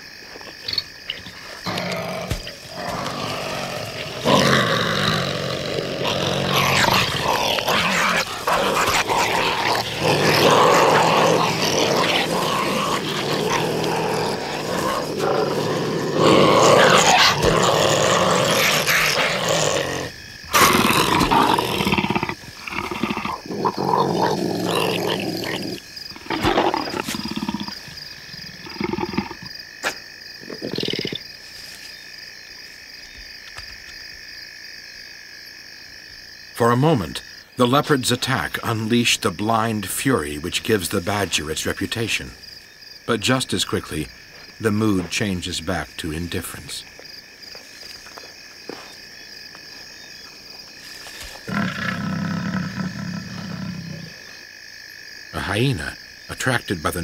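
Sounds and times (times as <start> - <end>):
animals growling and snarling: 0.6 - 31.2, 50.8 - 54.5.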